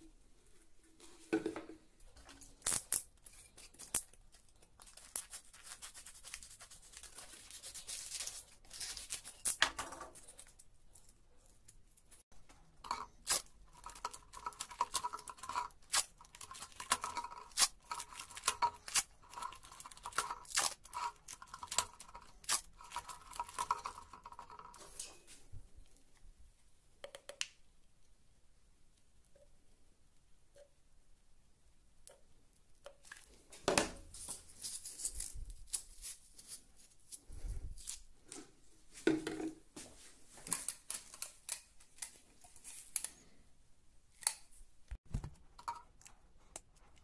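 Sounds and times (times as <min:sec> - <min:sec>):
scraping rustling noise: 0:33.2 - 0:39.1.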